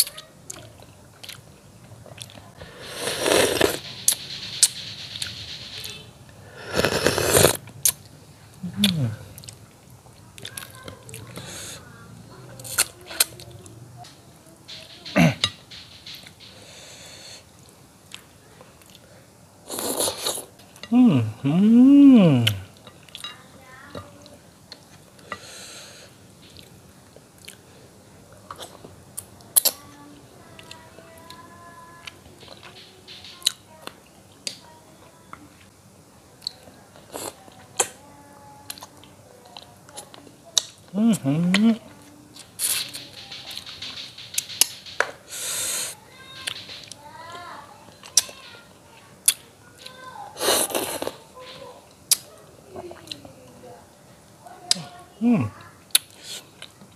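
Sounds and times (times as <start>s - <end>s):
chewing and sucking: 2.1s - 5.3s, 6.6s - 8.0s, 19.7s - 20.5s, 50.4s - 51.2s
noisy sucking slurps: 2.6s - 3.8s, 6.5s - 7.6s.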